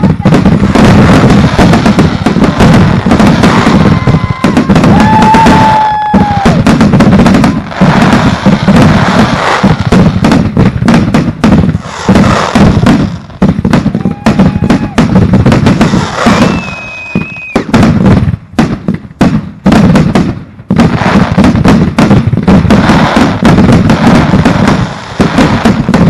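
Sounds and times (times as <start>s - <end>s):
firework whistle: 0.0s - 10.0s, 11.8s - 12.9s, 13.8s - 17.9s
fireworks thumps bangs and crackle: 0.0s - 26.0s.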